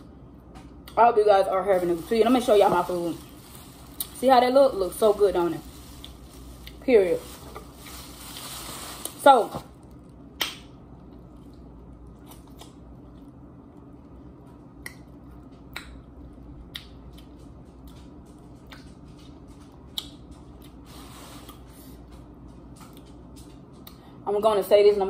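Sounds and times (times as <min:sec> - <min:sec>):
mouth clicks and smacks chewing: 0:16.6 - 0:18.0, 0:19.9 - 0:20.8.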